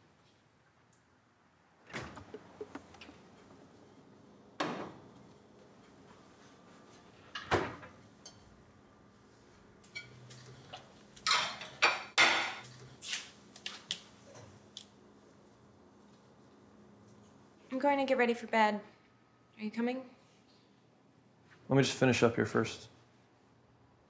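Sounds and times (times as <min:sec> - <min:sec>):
dishes and cutlery clattering: 0:11.2 - 0:12.6.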